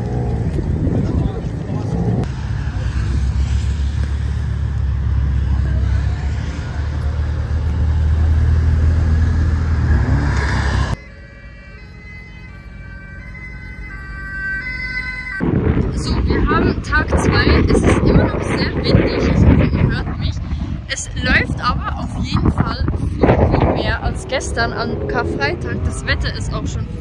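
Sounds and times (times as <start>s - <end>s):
car engines rumbling past: 0.0s - 11.0s, 15.4s - 27.0s
high tones shifting in pitch: 10.0s - 16.8s.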